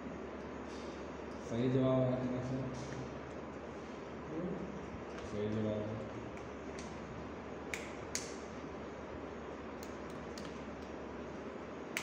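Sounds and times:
room noise hiss: 0.0s - 12.0s.

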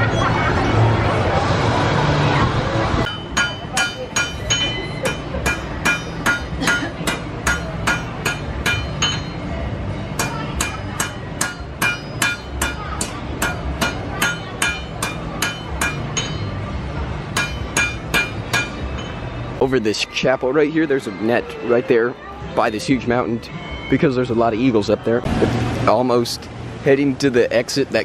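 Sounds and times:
hammer striking iron on anvil: 3.0s - 9.4s, 10.2s - 16.6s, 17.3s - 19.2s.

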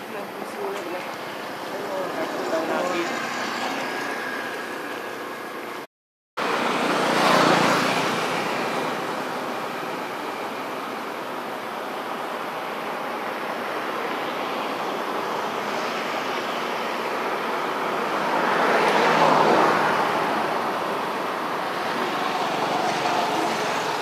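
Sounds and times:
road traffic rushing: 0.0s - 24.0s
vehicle passing: 6.4s - 9.9s.

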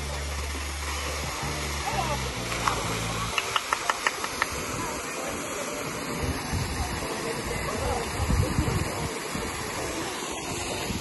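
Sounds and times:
low water rumbles: 0.0s - 11.0s
waterfall rushing: 0.0s - 11.0s.

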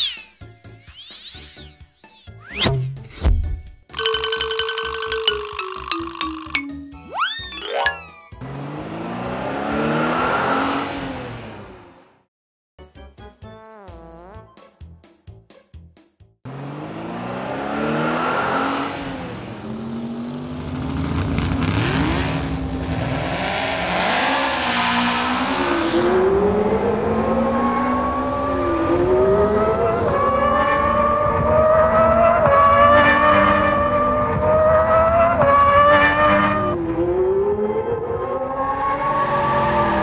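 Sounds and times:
racing car engines revving: 8.4s - 12.2s, 16.5s - 40.0s.

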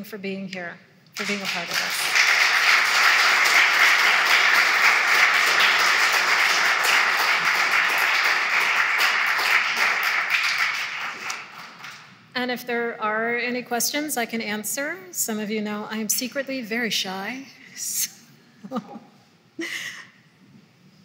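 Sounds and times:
audience applauding: 1.2s - 12.2s.

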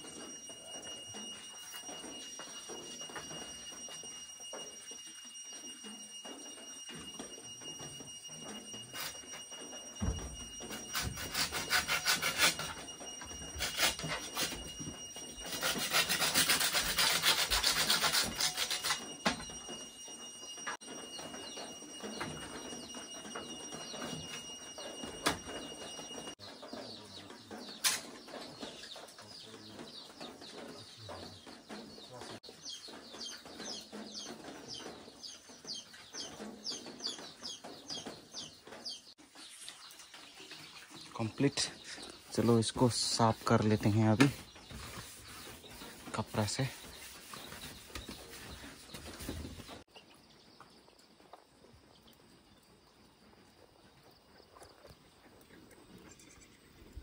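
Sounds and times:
hand saw cutting wood: 10.6s - 14.8s, 15.4s - 19.2s.

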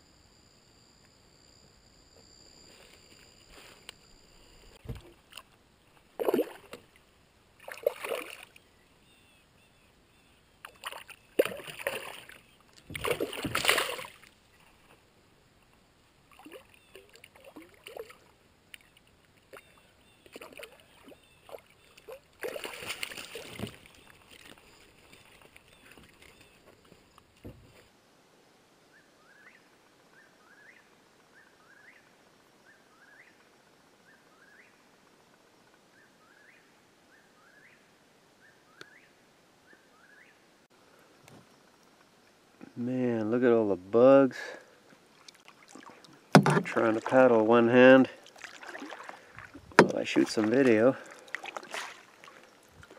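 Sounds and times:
fish splashing in water: 6.2s - 6.8s, 7.6s - 8.6s, 10.6s - 14.4s, 19.5s - 26.6s, 48.1s - 52.9s.

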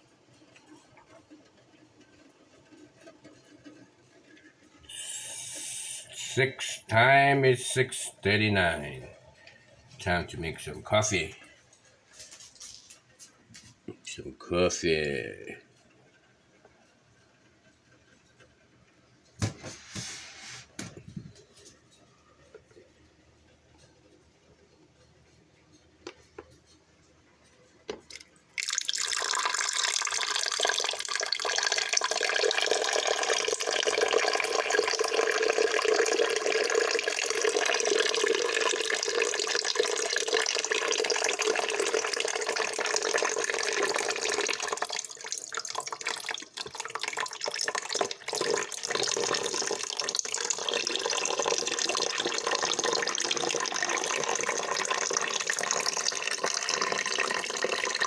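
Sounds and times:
water pouring into coffee maker: 0.0s - 13.0s, 27.9s - 58.0s.

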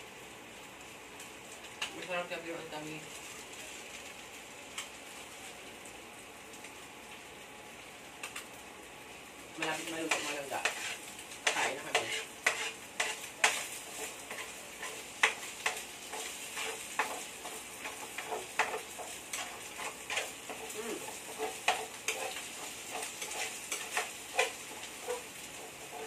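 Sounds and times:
meat sizzling in a frying pan: 0.0s - 26.0s
spatula scraping a pan: 9.6s - 26.0s.

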